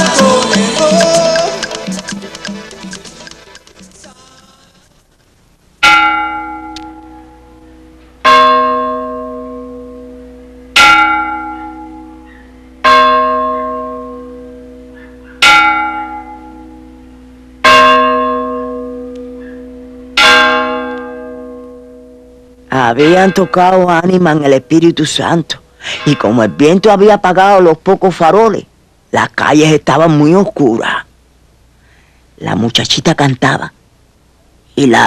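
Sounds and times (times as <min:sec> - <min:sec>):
church bell tolling: 0:05.8 - 0:24.9, 0:26.0 - 0:26.8.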